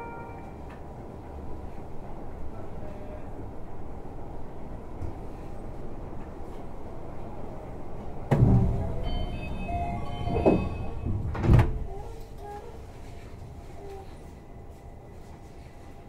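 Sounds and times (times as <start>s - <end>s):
sliding doors shutting: 8.2s - 12.6s
door chime tones: 8.8s - 11.3s.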